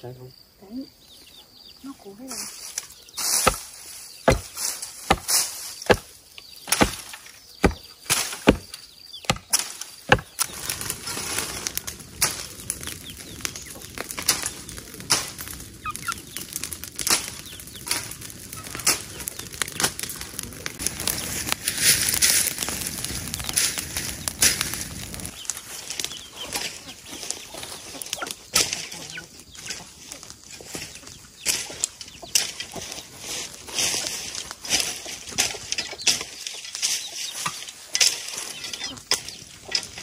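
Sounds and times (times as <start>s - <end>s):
burning brush crackling: 1.8s - 40.0s
hand tool hacking brush: 3.4s - 3.7s, 4.3s - 6.1s, 6.7s - 8.7s, 9.3s - 10.4s
pole thudding into earth: 4.3s - 5.3s.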